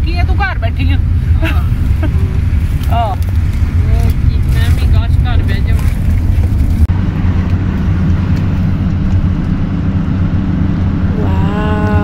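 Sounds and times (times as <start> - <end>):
van road and engine rumble: 0.0 - 12.0.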